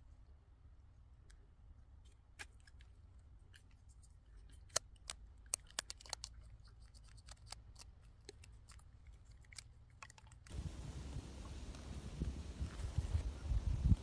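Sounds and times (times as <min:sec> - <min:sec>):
faint sharp clicks and crackles: 0:02.0 - 0:12.0
low steady rumble: 0:10.5 - 0:14.0.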